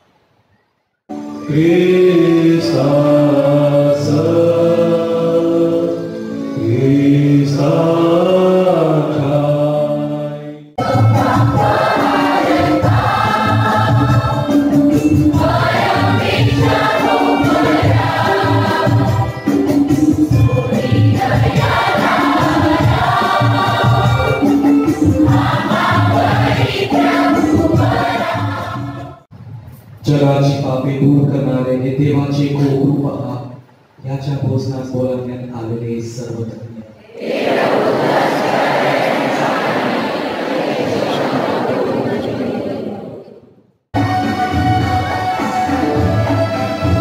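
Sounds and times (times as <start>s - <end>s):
choir singing a hymn: 1.2s - 29.3s, 37.1s - 43.2s
electronic keyboard: 10.8s - 28.8s.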